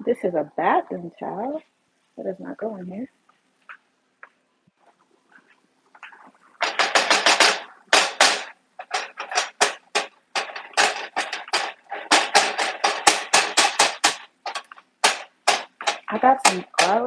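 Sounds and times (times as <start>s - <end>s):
spatula scraping meat in pan: 8.8s - 17.0s.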